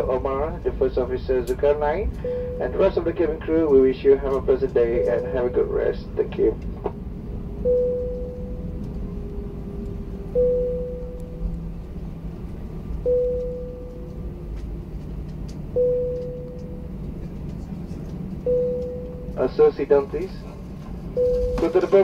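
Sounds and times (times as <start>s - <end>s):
airliner cabin rumble: 0.0s - 22.0s.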